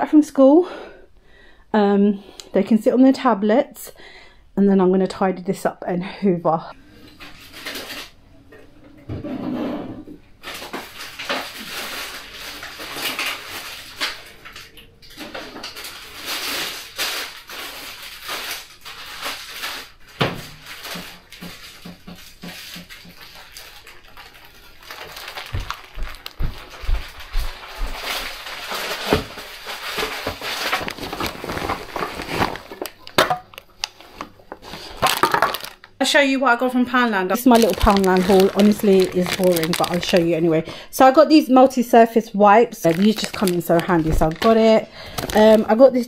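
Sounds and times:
items knocking and clattering: 0:20.2 - 0:23.4, 0:25.1 - 0:35.9, 0:37.4 - 0:40.2, 0:42.8 - 0:45.7
bags rustling: 0:22.6 - 0:35.9, 0:37.3 - 0:40.6, 0:42.8 - 0:46.0.

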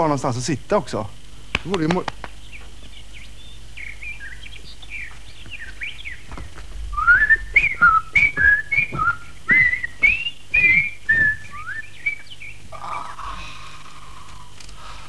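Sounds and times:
person whistling a tune: 0:07.0 - 0:11.9.

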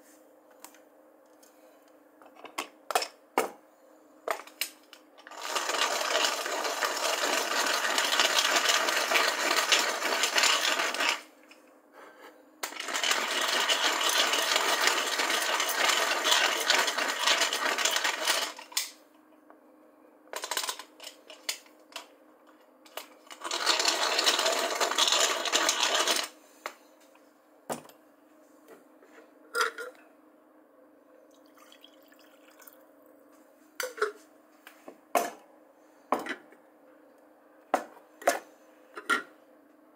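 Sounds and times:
coffee grinder grinding beans: 0:05.2 - 0:11.3, 0:12.6 - 0:19.0, 0:22.9 - 0:26.4.

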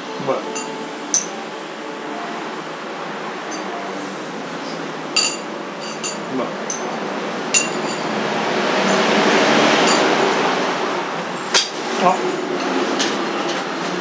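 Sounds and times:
tableware clinking: 0:00.5 - 0:01.6, 0:03.5 - 0:03.8, 0:05.2 - 0:08.2, 0:09.8 - 0:10.2.

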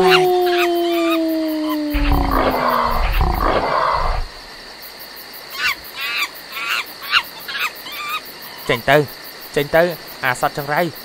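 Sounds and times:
night creatures chirping: 0:00.0 - 0:04.7
wild animal growling roars: 0:01.5 - 0:04.5.

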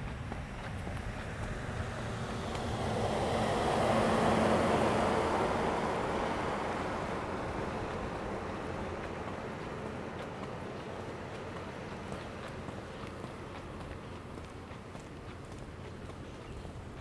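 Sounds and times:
car driving past: 0:00.0 - 0:15.0.

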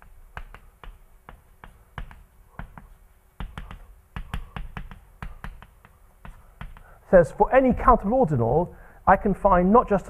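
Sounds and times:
chalk tapping on blackboard: 0:00.0 - 0:07.0.

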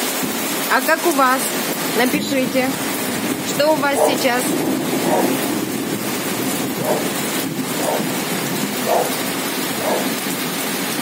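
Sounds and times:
heavy rain pouring: 0:00.0 - 0:11.0.

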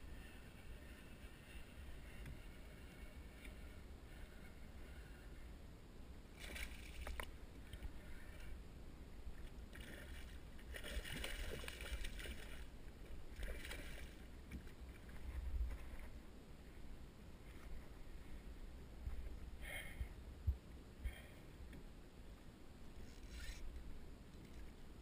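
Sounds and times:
fish thrashing and splashing: 0:10.7 - 0:12.6.

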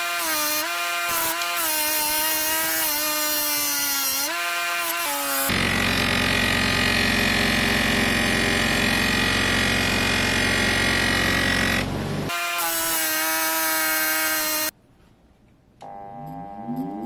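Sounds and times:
bench grinder motor hum: 0:05.4 - 0:12.3.

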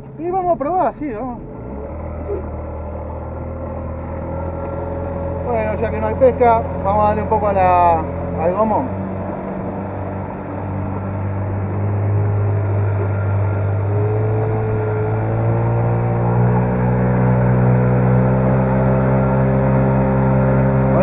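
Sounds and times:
outboard motor accelerating: 0:00.0 - 0:21.0.

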